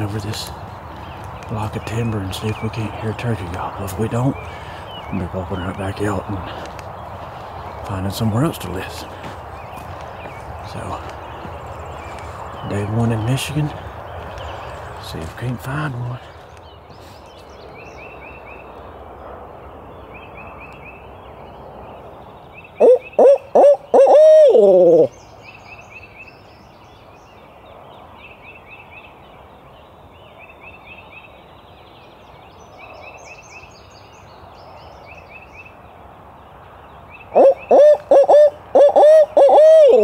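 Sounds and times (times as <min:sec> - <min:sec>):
distant highway traffic hum: 0:00.0 - 0:40.0
owl hoot call: 0:22.8 - 0:25.1, 0:37.3 - 0:40.0.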